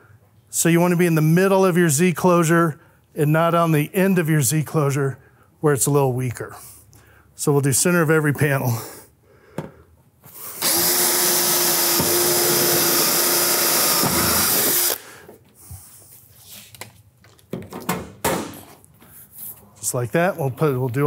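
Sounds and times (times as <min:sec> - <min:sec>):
cordless drill drilling metal: 0:10.6 - 0:15.0.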